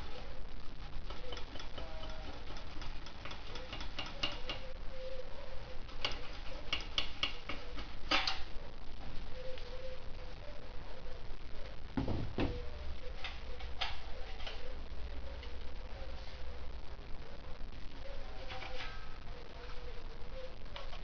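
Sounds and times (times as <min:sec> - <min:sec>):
hand tools clicking on metal: 0:01.1 - 0:04.7, 0:05.9 - 0:08.4.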